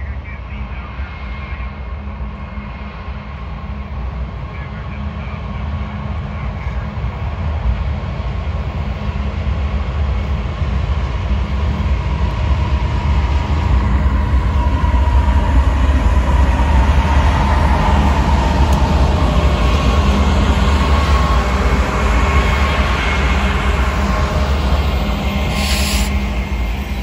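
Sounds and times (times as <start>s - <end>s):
diesel locomotive engine rumble: 0.0s - 27.0s
wavering whine: 8.4s - 27.0s.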